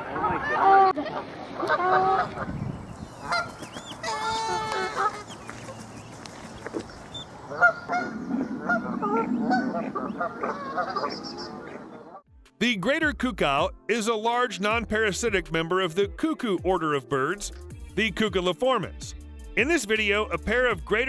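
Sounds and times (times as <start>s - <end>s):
geese honking: 0.0s - 2.6s, 3.2s - 12.2s.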